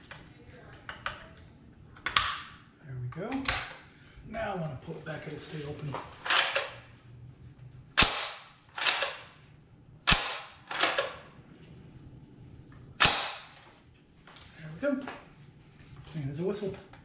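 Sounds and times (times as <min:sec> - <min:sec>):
rifle bolt metallic clacks: 0:06.2 - 0:06.8.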